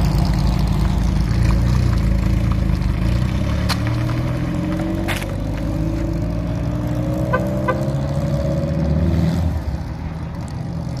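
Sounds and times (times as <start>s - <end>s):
car engine running: 0.0s - 6.7s.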